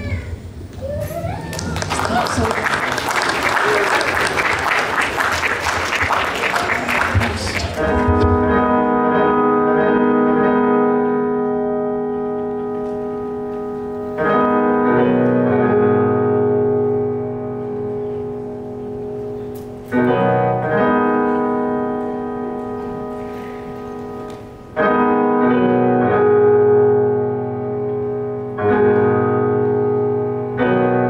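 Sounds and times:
applause: 1.3s - 8.3s
electronic keyboard piano chords: 7.0s - 31.0s.

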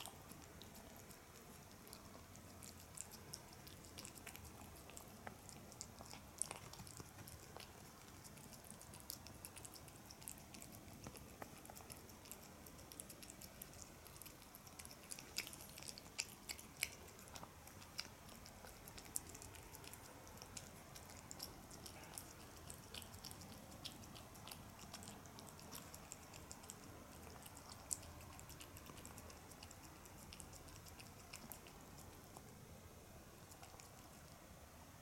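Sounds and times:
cat chewing and lapping: 0.0s - 35.0s.

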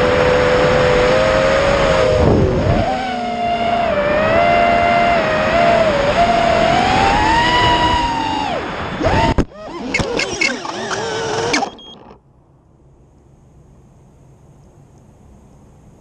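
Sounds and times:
quadcopter motors whining: 2.0s - 12.2s.

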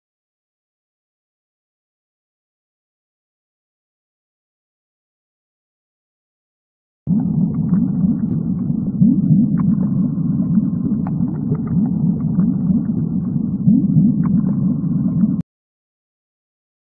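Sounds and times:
low steady rumble: 7.1s - 15.4s.

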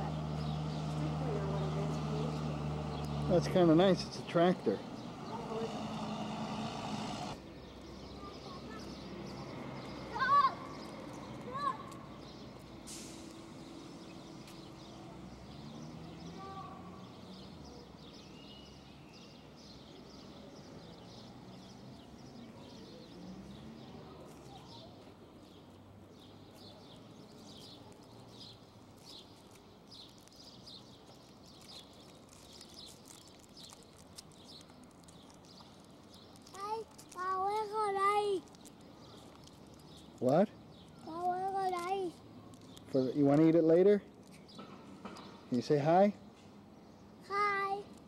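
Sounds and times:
distant voices: 0.0s - 7.4s
small birds chirping: 0.0s - 48.0s.

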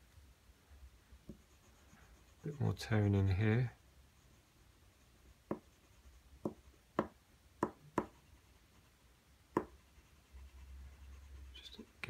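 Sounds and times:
graphite tapping on paper: 1.2s - 1.5s, 5.4s - 5.7s, 6.4s - 8.2s, 9.5s - 9.8s.

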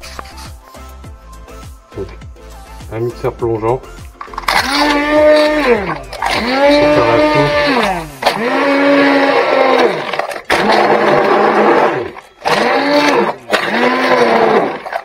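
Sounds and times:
immersion blender motor whirring: 4.3s - 15.0s.

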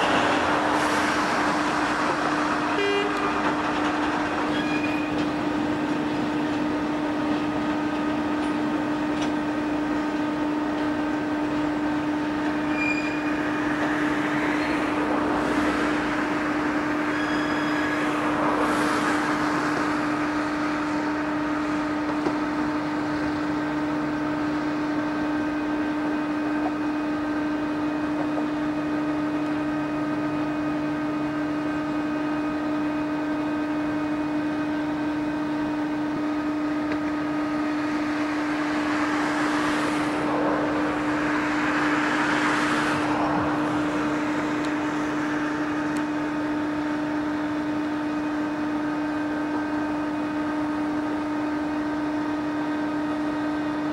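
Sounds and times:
hissing noise: 0.0s - 25.4s, 35.6s - 49.2s
diesel locomotive engine drone: 0.0s - 53.9s.

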